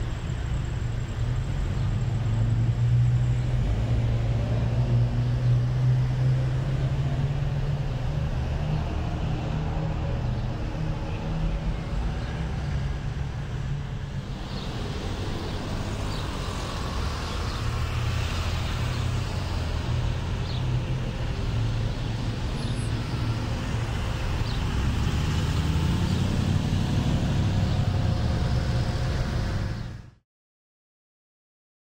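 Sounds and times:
car engines passing: 0.0s - 30.2s.

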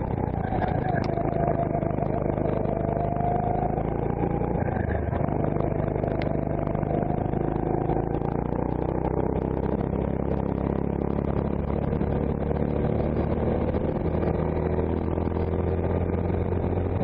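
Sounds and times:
go-kart engine running: 0.0s - 17.0s.

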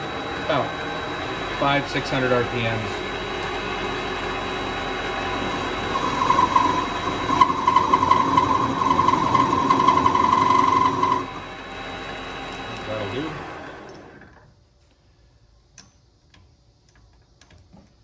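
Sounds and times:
high wavering cutting whine: 0.0s - 14.2s
lathe motor hum: 0.0s - 14.4s.

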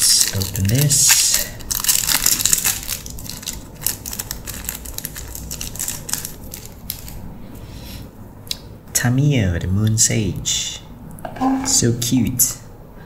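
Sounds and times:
plastic shrink-wrap crinkling: 0.0s - 7.3s.

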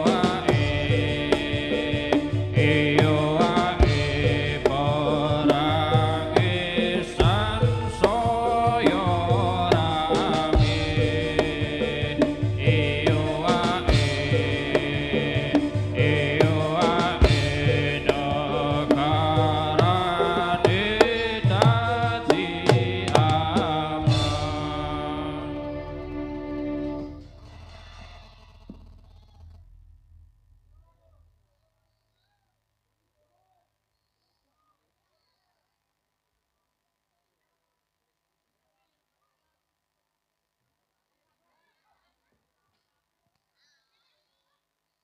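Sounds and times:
person singing wavering melody: 0.0s - 27.4s
gamelan music: 0.0s - 28.3s
hand drum strokes: 0.0s - 29.8s
sharp percussion hits: 0.0s - 30.3s.

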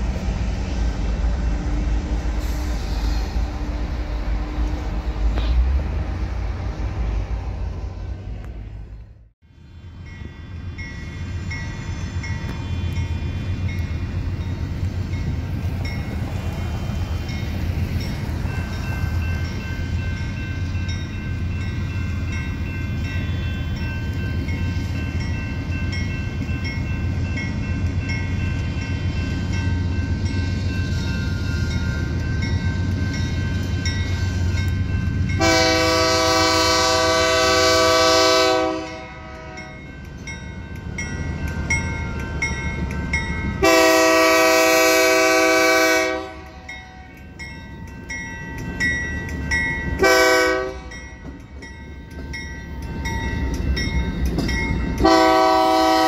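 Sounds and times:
crossing bell dinging: 10.0s - 44.6s, 46.0s - 56.0s
locomotive air horn blasts: 35.4s - 39.8s, 43.6s - 46.7s, 50.0s - 51.0s, 55.0s - 56.0s.

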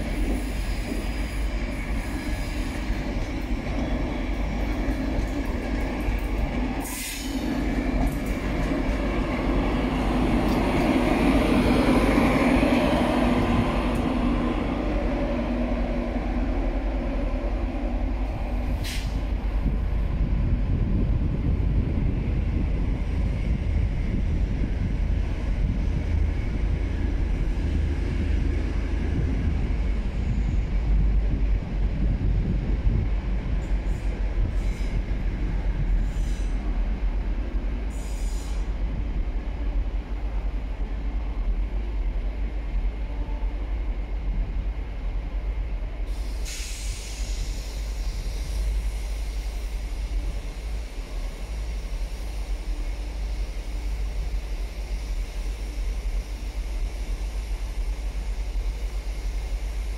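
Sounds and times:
train wheel squeals: 0.0s - 5.5s, 33.6s - 35.1s, 35.9s - 36.7s, 37.9s - 38.8s
train wheels rumbling: 0.0s - 59.9s.

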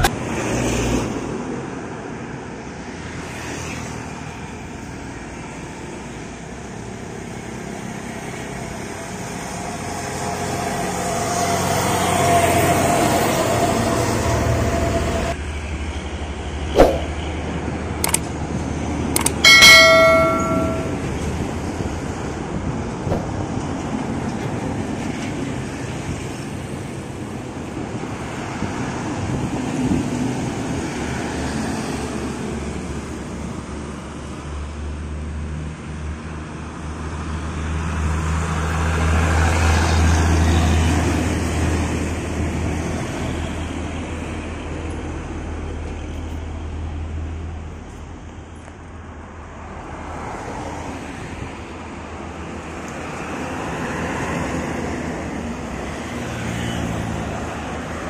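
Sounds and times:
trucks passing on road: 0.0s - 58.0s
sharp clicks: 18.0s - 18.3s, 19.2s - 19.4s.

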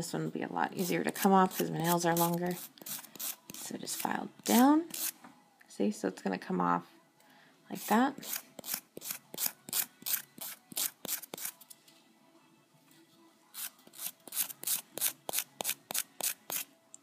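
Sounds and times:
nail file filing fingernail: 0.8s - 3.7s, 4.5s - 5.2s, 7.8s - 11.6s, 13.5s - 16.7s.

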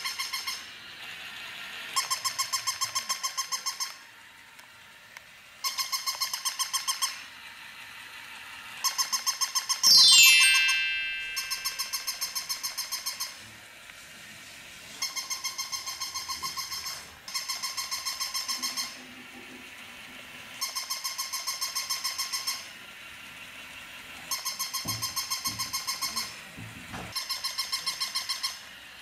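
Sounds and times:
toy puppy electronic barking: 0.0s - 0.7s, 1.7s - 4.0s, 5.6s - 7.3s, 8.7s - 13.4s, 15.0s - 19.1s, 20.4s - 22.8s, 23.5s - 26.4s, 27.1s - 28.8s.

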